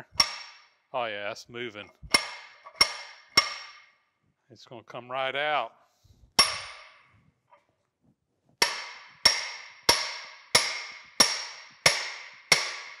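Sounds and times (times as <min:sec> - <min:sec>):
hammer striking steel shaft: 0:00.0 - 0:00.7, 0:02.1 - 0:03.9, 0:06.4 - 0:07.1, 0:08.6 - 0:13.0.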